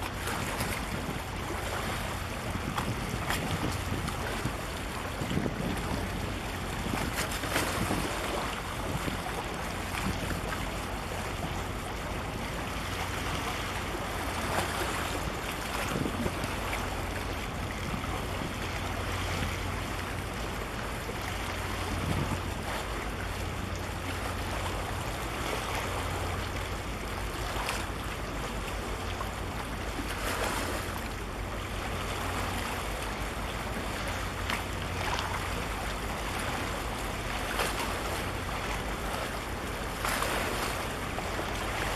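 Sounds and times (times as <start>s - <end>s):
wind buffeting microphone: 0.2s - 12.6s, 13.4s - 20.0s, 21.8s - 23.2s.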